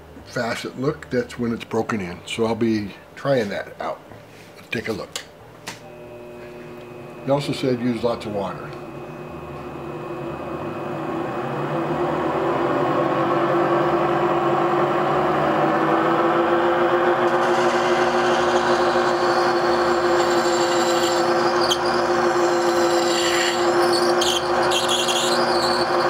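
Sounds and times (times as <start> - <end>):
faceting machine motor hum: 5.9 - 20.0.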